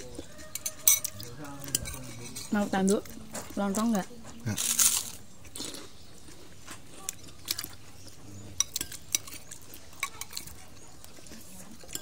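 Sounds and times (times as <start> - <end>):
cutlery clinking on a plate: 0.3 - 2.6, 8.6 - 10.6.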